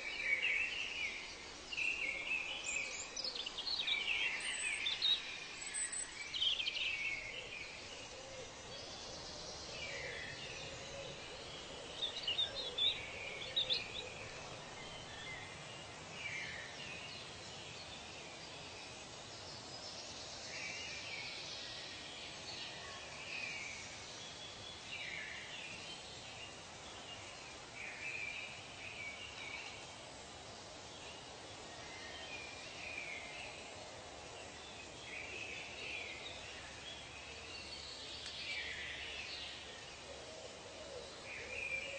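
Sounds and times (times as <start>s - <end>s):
birds chirping: 0.0s - 18.0s
steady hiss: 0.0s - 41.9s.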